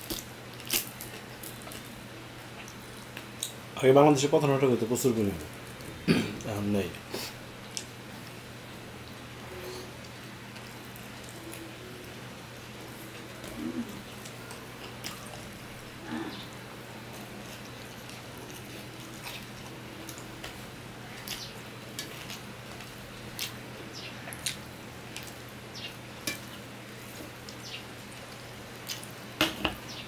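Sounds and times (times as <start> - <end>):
chewing: 12.9 - 23.6, 24.2 - 29.1.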